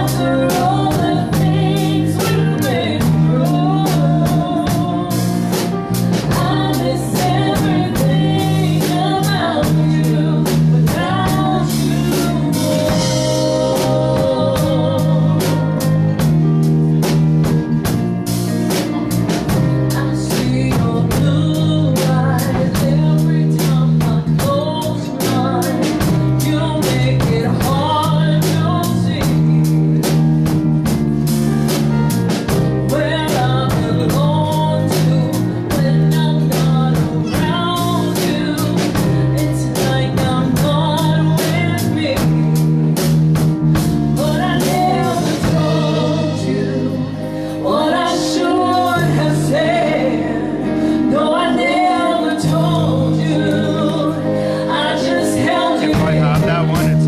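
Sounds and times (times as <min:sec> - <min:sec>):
woman singing into microphone: 0:00.0 - 0:16.3, 0:19.5 - 0:30.3, 0:32.7 - 0:43.1, 0:43.8 - 0:57.0
guitar: 0:00.0 - 0:57.0
drum beat: 0:55.7 - 0:57.0.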